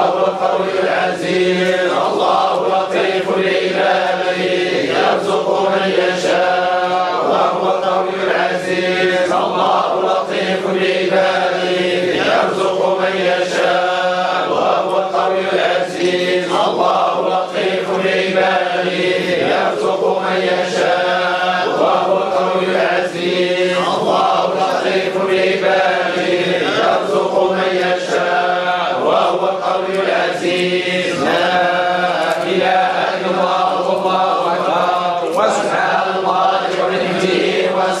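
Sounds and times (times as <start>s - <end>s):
men chanting together: 0.0s - 38.0s.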